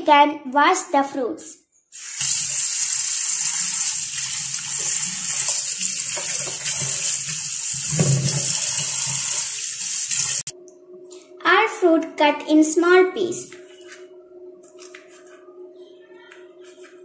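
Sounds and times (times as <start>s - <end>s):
tap water running into bowl: 2.2s - 10.5s.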